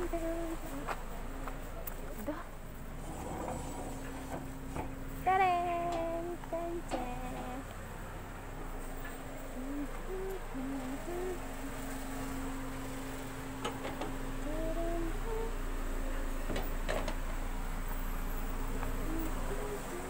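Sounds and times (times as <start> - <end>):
girl humming a tune: 0.0 - 0.9, 5.3 - 7.7, 9.0 - 11.9, 14.3 - 16.2, 18.7 - 20.0
steady low hum: 0.0 - 20.0.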